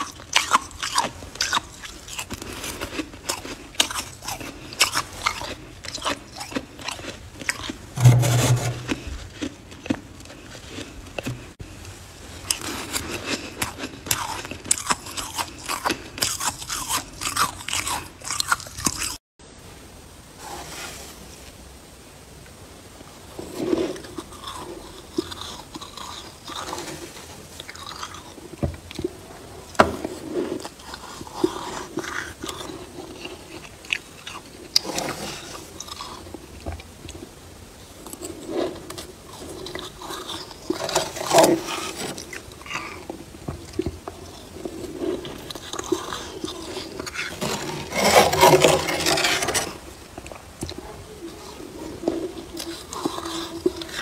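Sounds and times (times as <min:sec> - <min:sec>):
frost crunching and scraping: 0:00.3 - 0:11.6, 0:23.4 - 0:28.5, 0:38.1 - 0:50.7.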